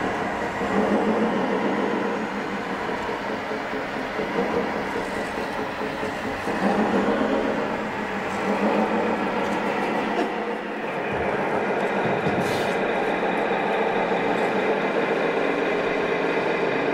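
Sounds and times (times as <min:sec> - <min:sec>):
model truck engine drone: 0:00.0 - 0:16.9.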